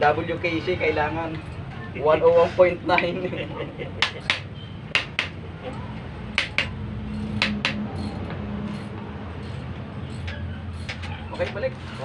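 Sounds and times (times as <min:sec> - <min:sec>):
hand tool clinking on metal: 0:05.7 - 0:12.0.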